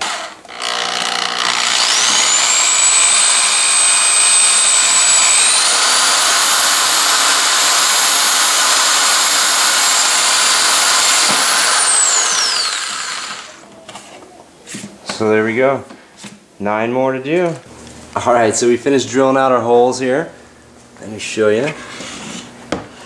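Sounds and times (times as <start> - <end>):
cordless drill motor whine: 0.0 - 13.6
drill bit cutting plastic: 0.0 - 13.6.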